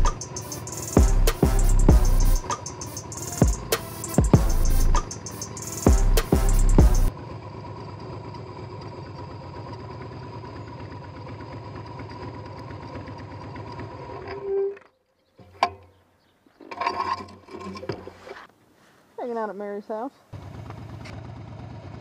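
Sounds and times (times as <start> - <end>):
background music: 0.0 - 7.1
motorcycle engine idling: 0.0 - 14.2, 20.3 - 22.0.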